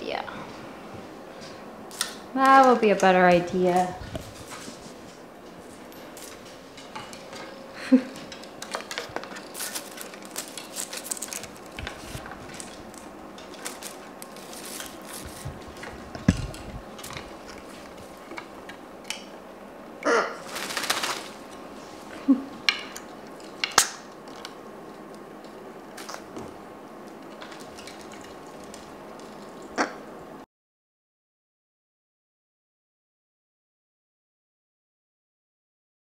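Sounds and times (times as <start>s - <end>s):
parrots clicking and rustling on perch: 5.6s - 19.3s, 20.5s - 21.6s, 27.1s - 29.7s.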